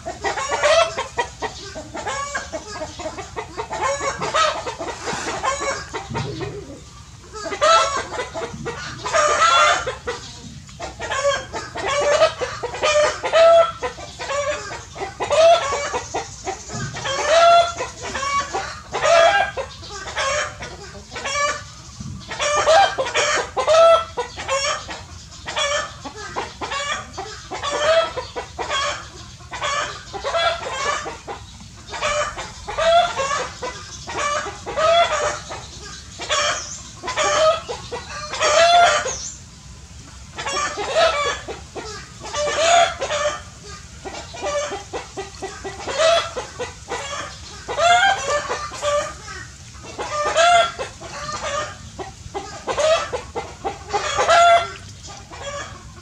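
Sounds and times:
chorus of animal calls: 0.0s - 39.5s.

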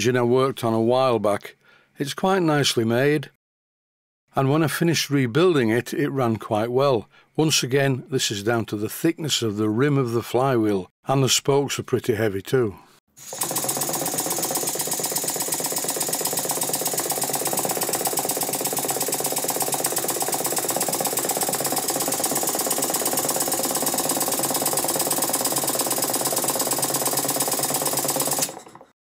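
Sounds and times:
model steam engine running: 13.2s - 28.9s.

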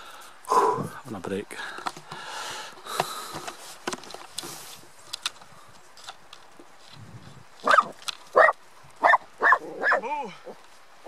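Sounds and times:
faint clicks and rustle: 1.6s - 9.2s, 10.4s - 11.0s
dog barking: 7.6s - 10.2s.

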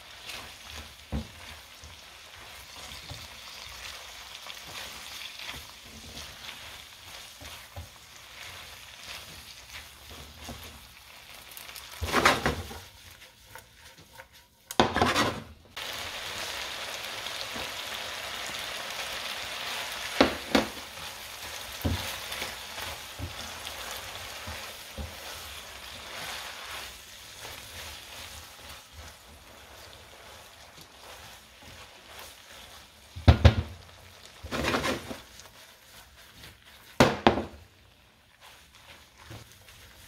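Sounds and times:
food sizzling in a frying pan: 0.0s - 40.0s
spatula knocking on pan: 20.2s - 20.8s, 33.2s - 33.8s, 37.0s - 37.6s.

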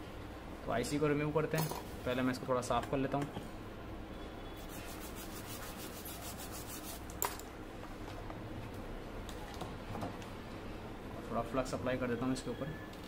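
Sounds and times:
tool scrubbing circuit board: 4.7s - 7.1s.

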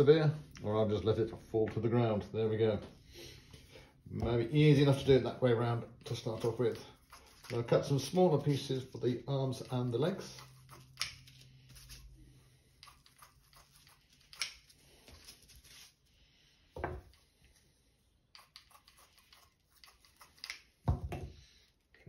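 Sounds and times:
scissors snipping gauze: 10.2s - 12.0s, 12.8s - 14.8s, 18.3s - 20.8s
rustles of handling: 13.5s - 16.1s.

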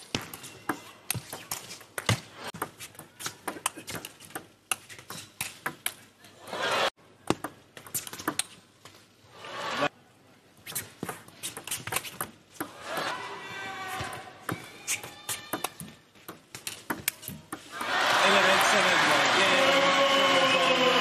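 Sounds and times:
crowd noise: 17.2s - 21.0s
drawn-out shout: 17.8s - 21.0s.

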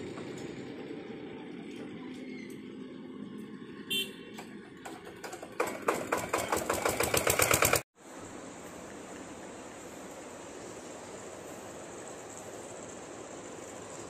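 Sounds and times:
small engine ticking: 4.8s - 7.8s
steady hiss: 8.0s - 14.0s.

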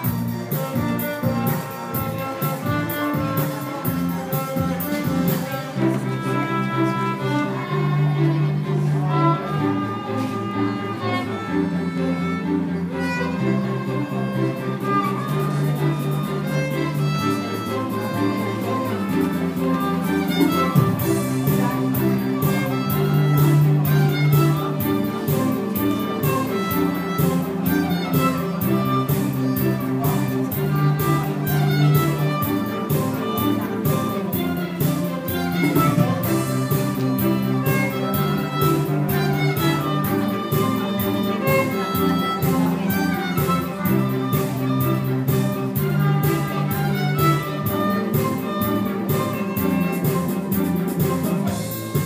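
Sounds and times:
steady drum beat: 0.0s - 5.6s, 19.8s - 52.0s
pop backing track: 0.0s - 5.9s, 11.9s - 52.0s
violin melody: 0.0s - 52.0s
bass: 15.2s - 52.0s.

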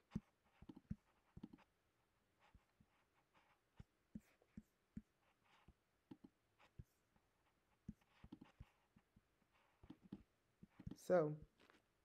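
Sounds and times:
computer mouse clicks: 0.6s - 1.6s, 9.8s - 11.0s.

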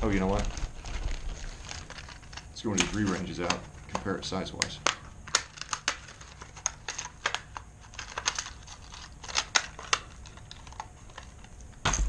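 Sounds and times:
plastic packaging clicking and crinkling: 0.0s - 12.0s.

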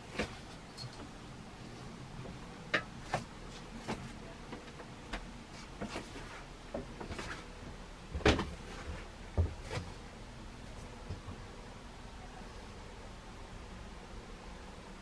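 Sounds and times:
knocks and clunks: 8.1s - 9.9s.

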